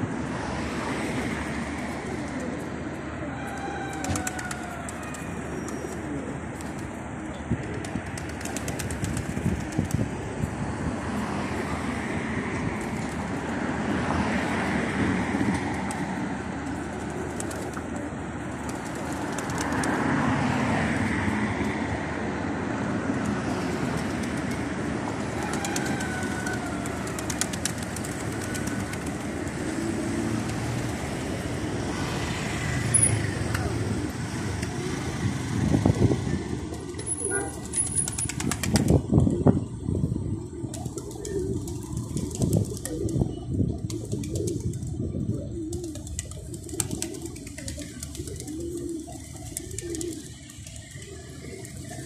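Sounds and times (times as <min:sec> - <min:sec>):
street traffic noise: 0:00.0 - 0:52.0
pigeons cooing: 0:01.5 - 0:09.0, 0:23.5 - 0:52.0.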